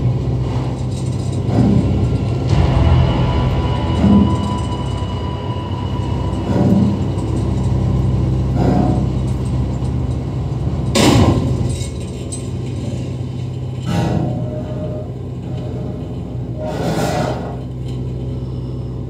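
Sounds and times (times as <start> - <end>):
dull metal clanks: 0.0 - 16.7
propeller engines droning: 0.0 - 19.0
loud crash: 1.6 - 9.3, 10.8 - 14.5.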